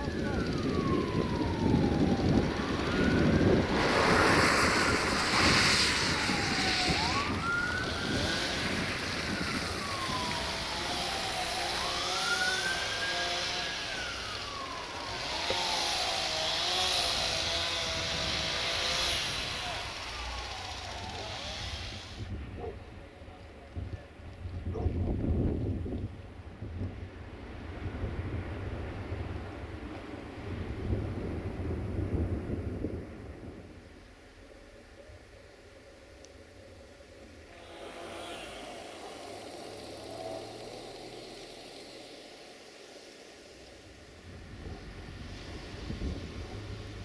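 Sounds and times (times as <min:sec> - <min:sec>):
siren wailing: 0:00.0 - 0:17.3, 0:19.4 - 0:21.8
traffic rumble: 0:00.0 - 0:47.0.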